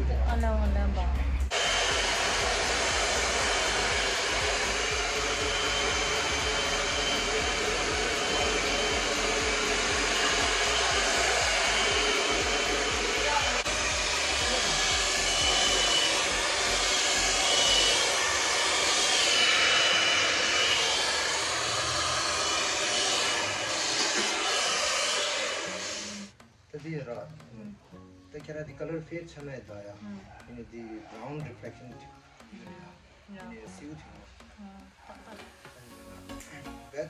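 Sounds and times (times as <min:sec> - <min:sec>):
hair dryer blowing: 0:01.4 - 0:26.4.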